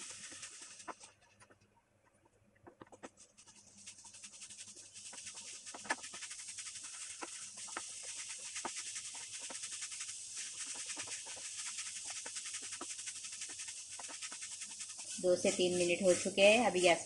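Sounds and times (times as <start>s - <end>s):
food sizzling in a frying pan: 0.0s - 1.1s, 3.7s - 17.0s
spatula scraping and knocking pan: 10.4s - 17.0s.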